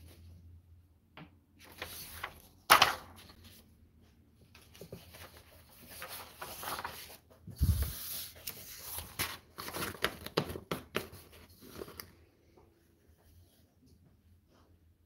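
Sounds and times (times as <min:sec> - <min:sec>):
paper rustling: 0:01.6 - 0:03.6, 0:04.5 - 0:12.1.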